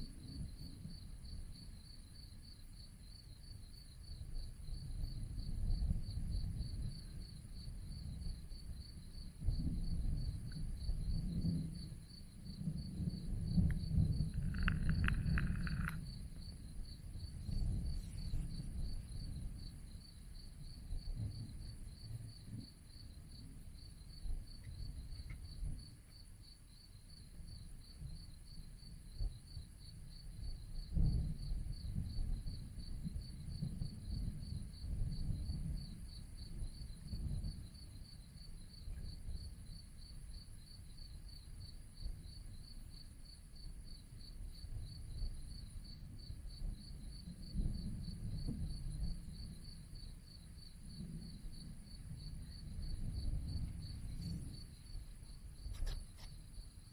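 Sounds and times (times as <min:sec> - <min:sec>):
crickets chirping: 0:00.0 - 0:56.9
low uneven rumble: 0:13.2 - 0:19.8.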